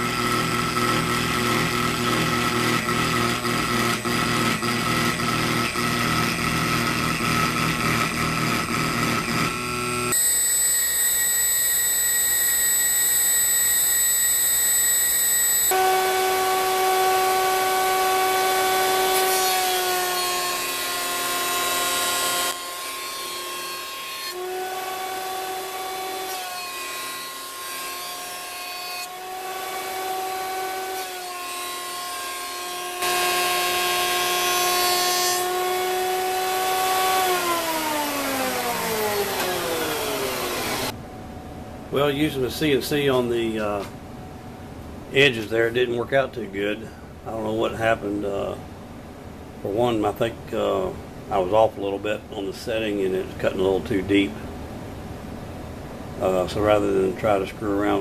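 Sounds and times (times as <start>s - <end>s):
jointer motor running: 0.0s - 41.0s
router spindle whine: 0.0s - 41.0s.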